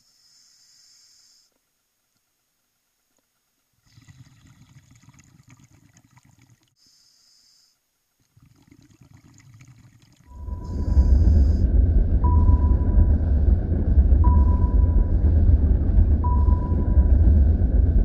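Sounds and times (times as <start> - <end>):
inhalation hiss: 0.0 - 1.6, 6.8 - 7.9
exhaled air bubbling: 3.8 - 6.7, 8.2 - 14.4
loud steady sound: 10.3 - 18.0.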